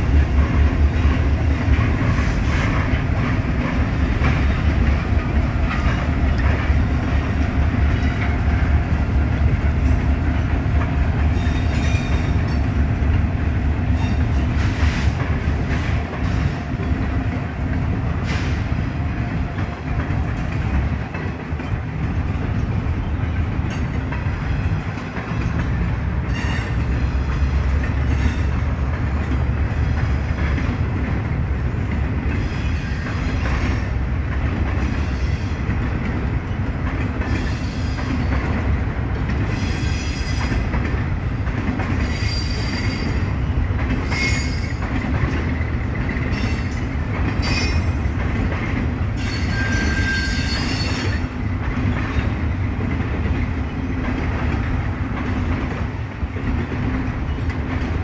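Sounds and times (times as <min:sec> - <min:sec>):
train wheels rumbling on rails: 0:00.0 - 0:58.0
high-pitched wheel squeals: 0:49.2 - 0:51.3.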